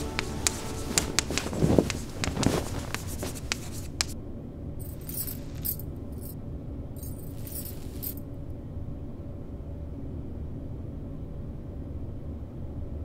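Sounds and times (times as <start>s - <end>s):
hairbrush swishing through hair: 0.0s - 4.2s
metal bangles jingling: 0.0s - 4.2s, 4.8s - 6.4s, 7.0s - 8.2s
low steady hum: 0.0s - 13.0s.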